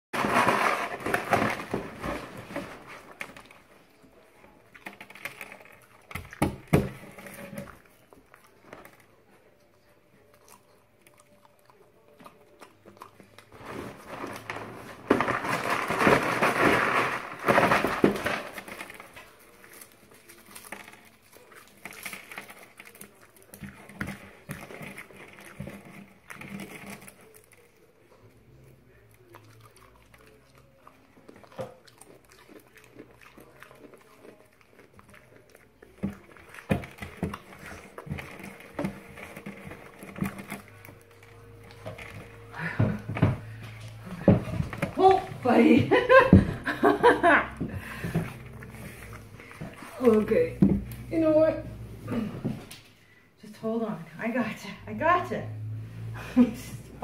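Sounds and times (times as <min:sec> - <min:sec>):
cereal rattling in cardboard box: 0:00.2 - 0:03.7, 0:13.5 - 0:27.7, 0:35.3 - 0:46.3.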